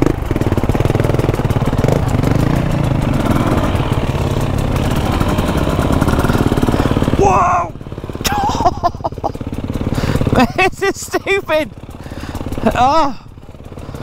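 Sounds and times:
dirt bike engine at low revs: 0.0s - 14.0s.

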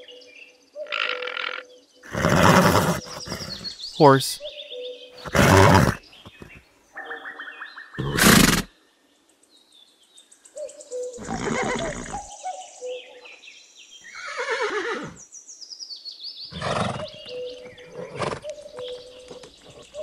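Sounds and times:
horses neighing: 2.0s - 4.4s, 5.2s - 6.6s, 8.0s - 8.7s, 11.2s - 12.3s, 14.1s - 15.2s, 16.5s - 17.2s, 17.8s - 18.6s.

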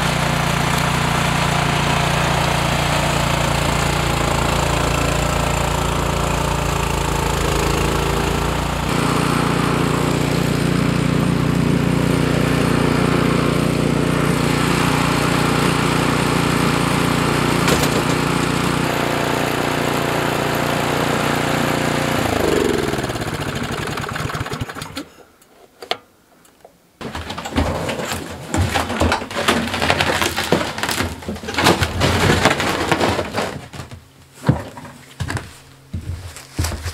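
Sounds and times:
snowblower engine running: 0.0s - 25.1s.

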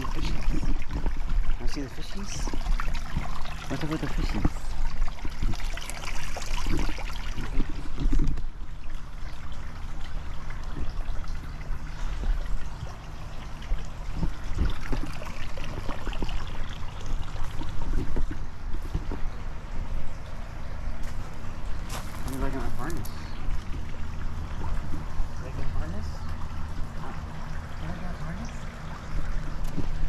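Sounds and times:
knocks of dog walking on gravel: 21.0s - 22.9s.

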